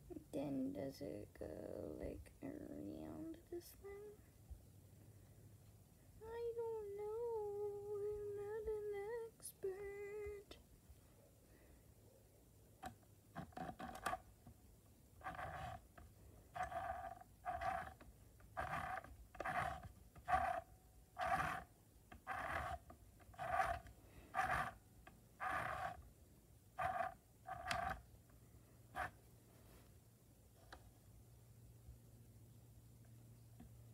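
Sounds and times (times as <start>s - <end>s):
sewing machine motor whine: 16.6s - 18.0s, 18.6s - 24.8s, 25.4s - 26.0s, 26.8s - 28.0s.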